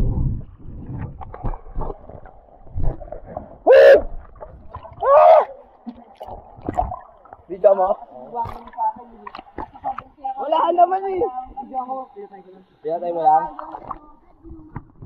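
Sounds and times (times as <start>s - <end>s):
water splashing and sloshing: 0.0s - 11.8s, 13.3s - 15.0s
person shouting whoops: 3.7s - 4.1s, 5.0s - 5.6s.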